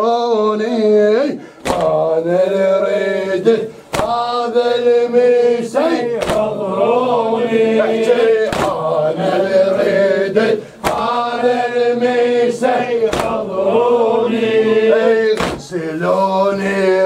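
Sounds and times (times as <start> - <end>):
men chanting a lament: 0.0 - 17.0
chest slaps in unison: 1.6 - 2.1, 3.8 - 4.3, 6.1 - 6.6, 8.4 - 8.9, 10.8 - 11.2, 13.0 - 13.5, 15.2 - 15.8.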